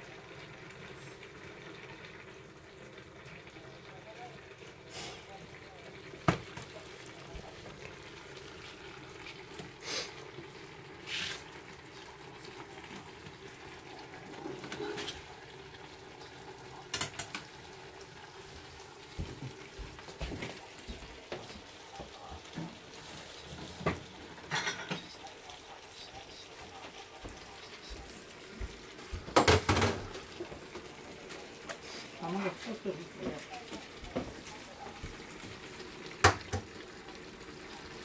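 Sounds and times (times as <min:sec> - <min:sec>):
utensils and cookware clinking: 0:14.3 - 0:15.4, 0:16.8 - 0:17.6, 0:21.3 - 0:26.7.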